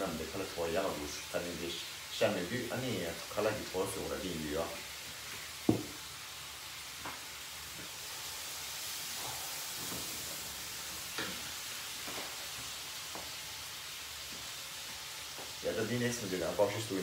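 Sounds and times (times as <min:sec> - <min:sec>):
sauce sizzling in a frying pan: 0:00.0 - 0:17.0
wooden spatula knocking: 0:05.7 - 0:06.0.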